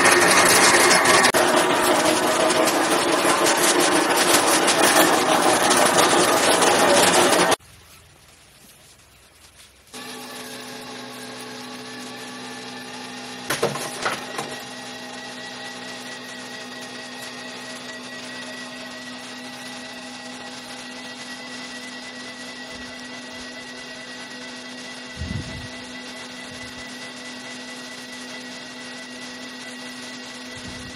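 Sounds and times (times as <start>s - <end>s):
electric motor humming: 0.0s - 7.6s, 10.0s - 30.9s.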